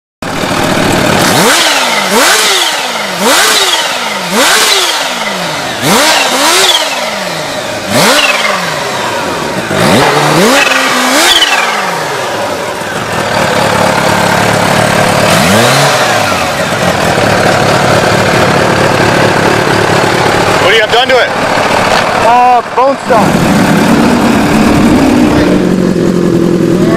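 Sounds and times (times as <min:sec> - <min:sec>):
motorcycle engine revving: 0:00.2 - 0:26.9.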